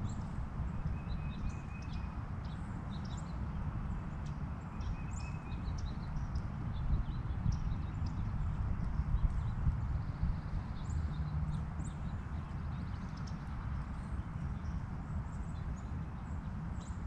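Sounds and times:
songbirds chirping: 0.0s - 17.0s.

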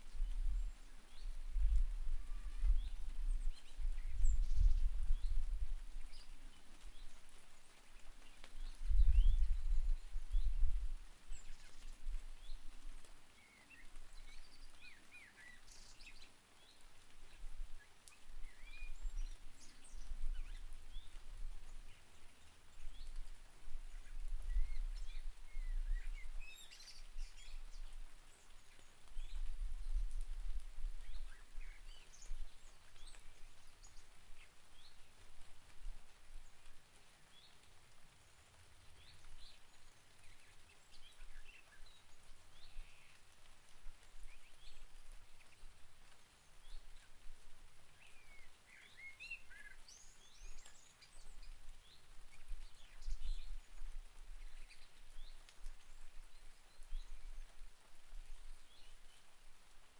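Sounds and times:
birds chirping: 0.0s - 12.8s
steady rain: 0.0s - 59.9s.

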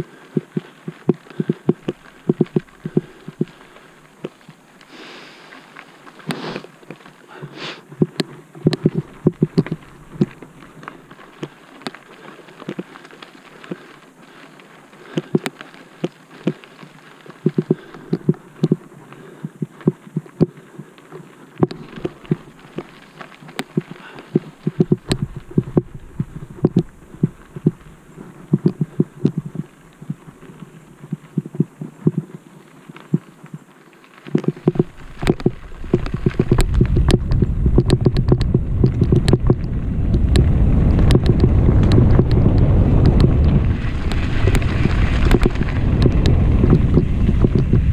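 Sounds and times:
bike thumping and rattling: 34.6s - 47.9s.

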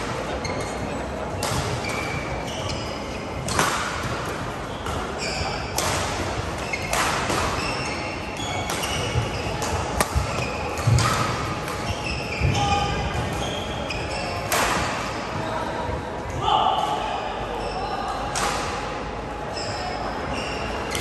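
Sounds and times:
shoe squeaks on court: 1.8s - 3.3s, 4.6s - 5.7s, 6.6s - 9.6s, 11.8s - 14.5s
racket striking shuttlecock: 3.5s - 4.2s, 8.6s - 11.8s.

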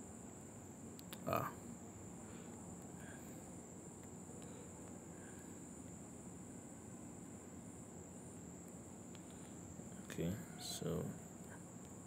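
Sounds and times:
low hiss: 0.0s - 12.0s
high-pitched whine: 9.4s - 12.0s.

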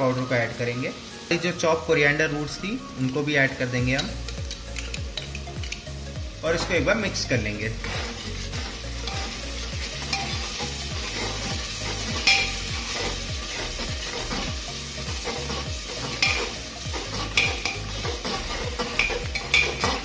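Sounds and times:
masala sizzling in oil: 0.0s - 20.0s
metal spatula scraping pot: 6.5s - 20.0s
spatula clinking against pot: 10.0s - 13.0s, 15.2s - 20.0s.

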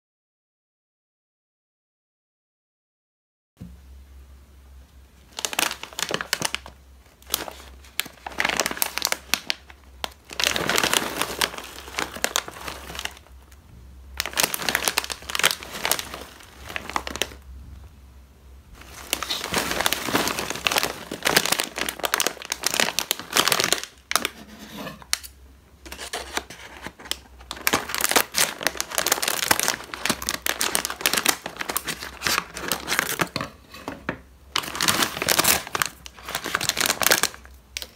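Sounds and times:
plastic snack bag crinkling: 5.2s - 17.5s, 18.7s - 37.9s
scissors cutting plastic bag: 5.4s - 13.2s, 18.8s - 25.3s, 25.9s - 33.9s, 34.6s - 37.9s.

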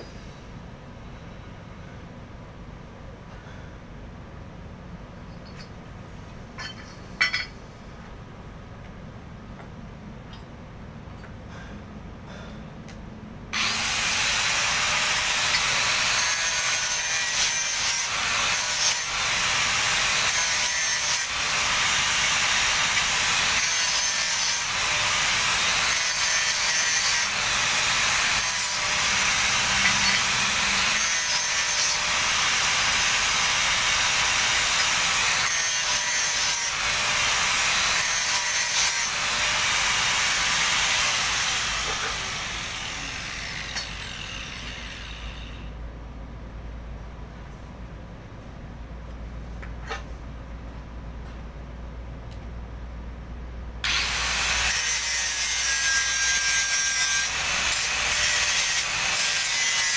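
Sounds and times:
angle grinder on steel: 13.6s - 45.7s, 53.8s - 59.9s.

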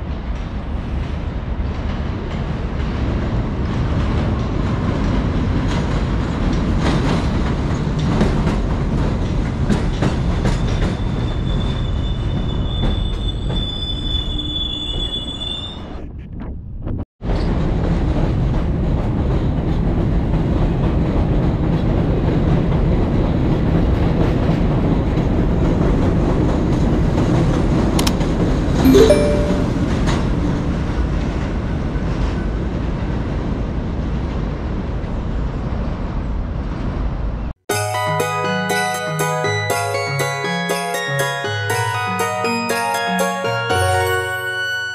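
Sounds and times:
train rumble: 0.0s - 13.8s
high wheel squeal: 11.0s - 16.0s
short tone: 28.9s - 30.1s.

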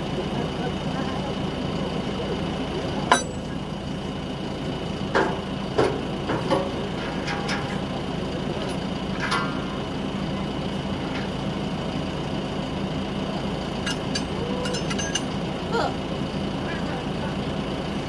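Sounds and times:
diesel engine idling: 0.0s - 18.0s
chain clanking on metal bucket: 3.1s - 3.6s, 5.2s - 8.0s, 13.8s - 15.4s.

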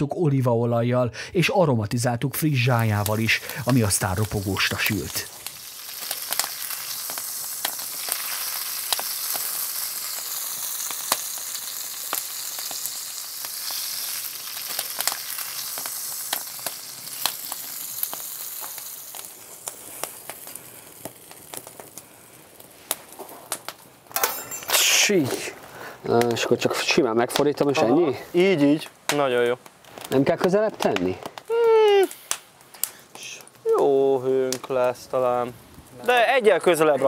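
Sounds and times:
food sizzling in oil: 2.4s - 25.6s.

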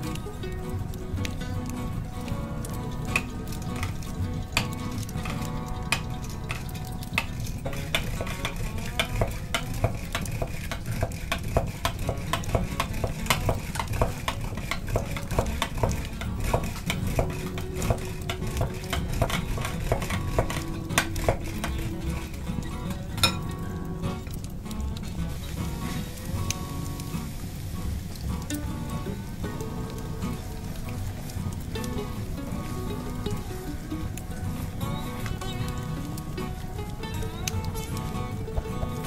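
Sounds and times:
eggs sloshing: 0.0s - 39.0s
whisk rattling against glass bowl: 3.8s - 22.4s.

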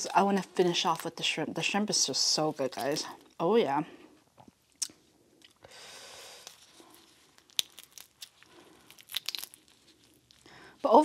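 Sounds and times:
shell and glove crinkling: 2.4s - 3.4s, 4.3s - 11.0s
crawfish shells cracking: 6.4s - 10.6s.

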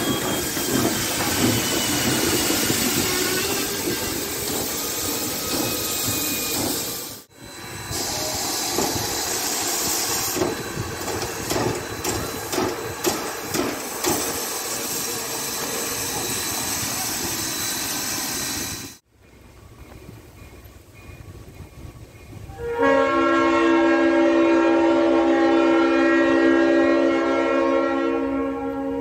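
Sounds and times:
locomotive puffing: 0.0s - 19.0s
steam hissing: 0.0s - 19.0s.

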